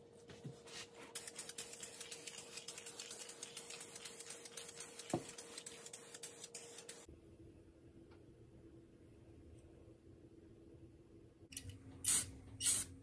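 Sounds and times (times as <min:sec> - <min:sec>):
spray can hissing spurts: 0:01.2 - 0:07.1, 0:12.1 - 0:12.9.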